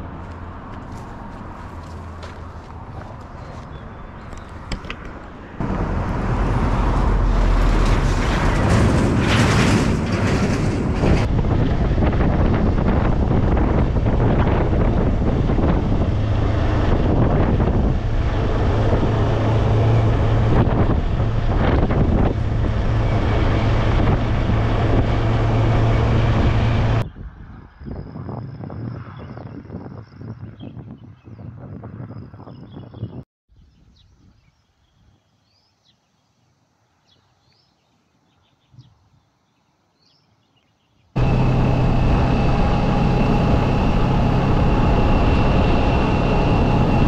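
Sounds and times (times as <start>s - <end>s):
road traffic hum: 0.0s - 29.4s, 41.1s - 47.0s
wind buffeting microphone: 0.8s - 35.2s, 41.2s - 47.0s.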